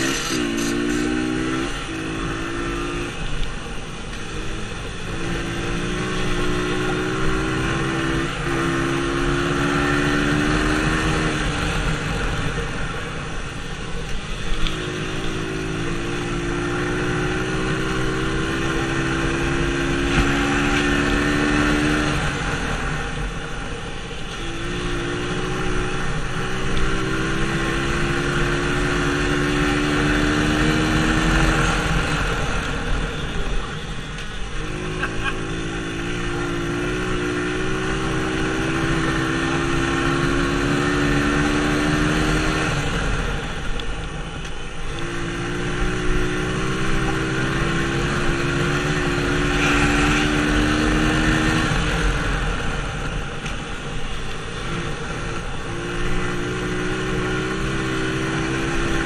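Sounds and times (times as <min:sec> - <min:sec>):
dirt bike engine revving: 0:00.0 - 0:03.2, 0:04.8 - 0:11.8, 0:24.5 - 0:32.5, 0:34.6 - 0:43.1, 0:45.0 - 0:52.6, 0:54.5 - 0:59.0.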